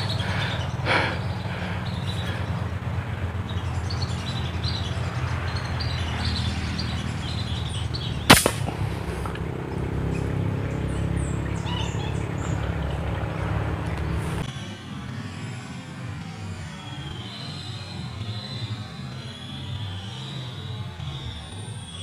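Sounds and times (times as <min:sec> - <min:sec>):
small birds chirping: 0:00.0 - 0:22.0
low rumble: 0:08.2 - 0:14.5
air gun shot: 0:08.3 - 0:09.4.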